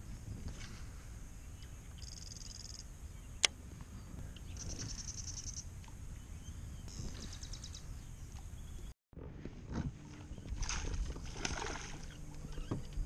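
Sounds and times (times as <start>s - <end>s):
low steady rumble: 0.0s - 13.0s
bird high trills: 2.0s - 2.9s.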